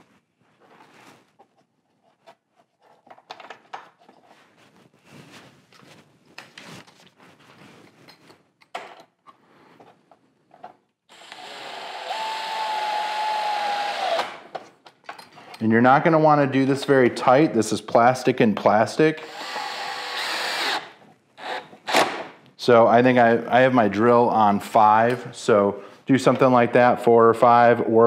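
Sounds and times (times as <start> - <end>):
parts clicking and knocking: 2.2 - 4.2
cordless drill whining: 11.1 - 14.4, 19.2 - 21.9.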